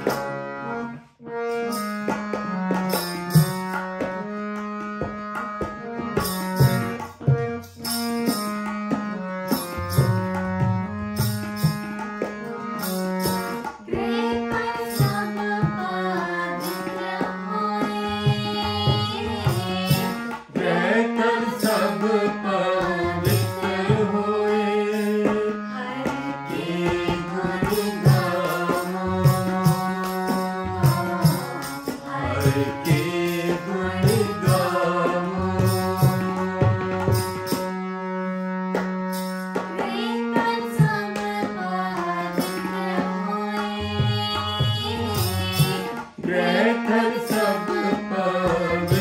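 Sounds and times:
tabla beat: 0:00.0 - 0:00.5, 0:01.7 - 0:37.8, 0:38.7 - 0:49.0
harmonium sustained chords: 0:00.0 - 0:49.0
person singing: 0:13.9 - 0:37.4, 0:39.8 - 0:49.0.

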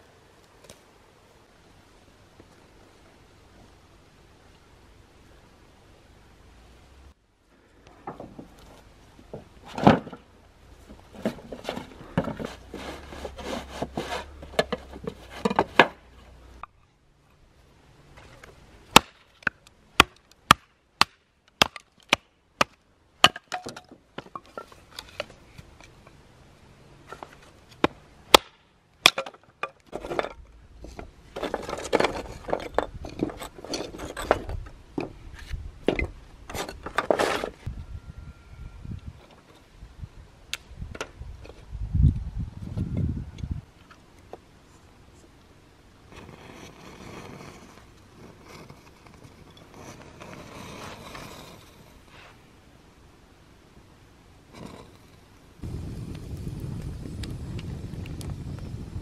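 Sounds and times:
wood clattering and knocking: 0:08.0 - 0:10.3, 0:10.9 - 0:16.0
hatchet cracking into wood: 0:18.9 - 0:23.8, 0:27.8 - 0:29.3.

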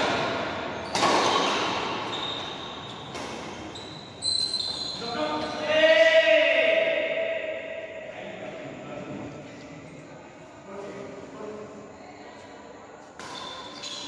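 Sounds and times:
rackets smacking shuttlecock: 0:00.0 - 0:03.7, 0:13.0 - 0:14.0.

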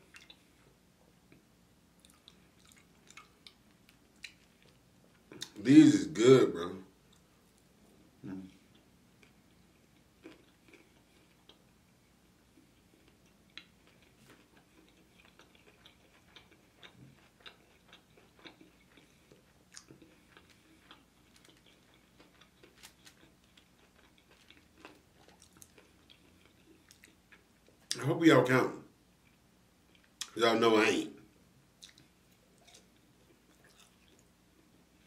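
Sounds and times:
faint steady hum: 0:00.0 - 0:35.0
wet chewing sounds: 0:02.0 - 0:05.6, 0:08.5 - 0:11.7, 0:12.5 - 0:28.0, 0:31.8 - 0:34.3.

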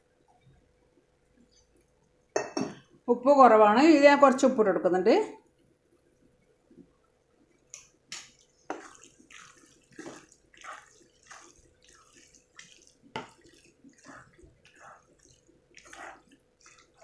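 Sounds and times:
wet stirring of pasta: 0:07.4 - 0:17.0.

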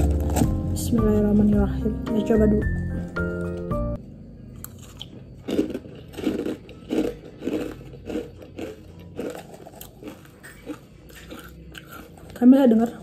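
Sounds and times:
crunchy chewing of cereal: 0:00.0 - 0:00.8, 0:04.5 - 0:13.0.

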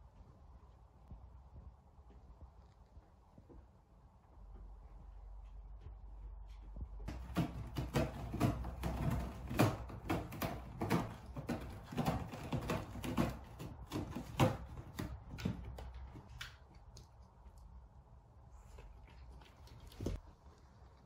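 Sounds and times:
cat scratching cardboard: 0:07.0 - 0:16.6.

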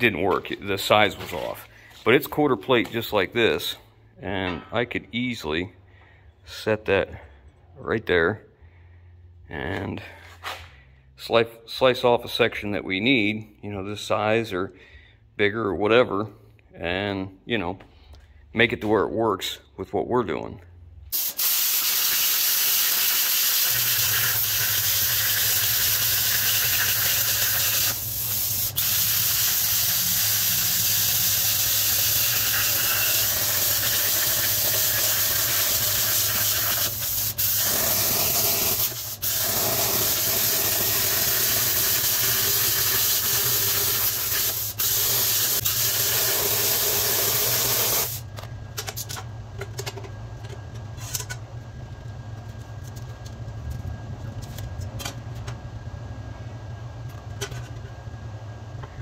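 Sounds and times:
low steady hum: 0:00.0 - 0:21.2, 0:48.2 - 0:59.0
plasma cutter hissing: 0:21.2 - 0:48.2.

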